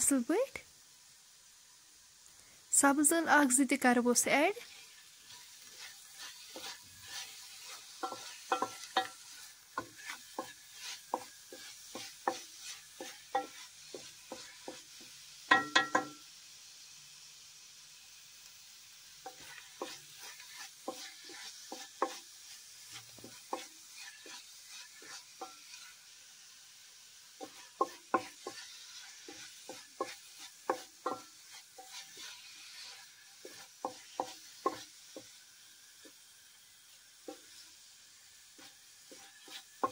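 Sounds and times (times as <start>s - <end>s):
faint sizzle: 0.0s - 39.9s
wooden spatula scraping pot: 4.5s - 14.9s, 19.2s - 26.1s, 27.4s - 35.3s, 38.6s - 39.9s.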